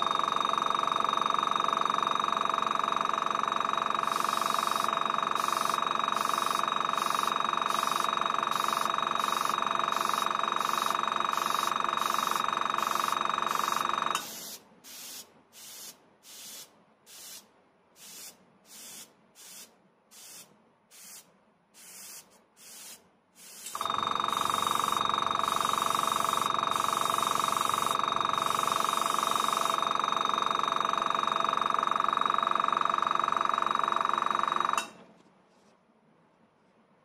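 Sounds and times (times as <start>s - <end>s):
air compressor humming: 3.7s - 17.4s, 18.0s - 21.2s, 21.8s - 34.2s
airbrush spraying hiss: 14.2s - 23.8s.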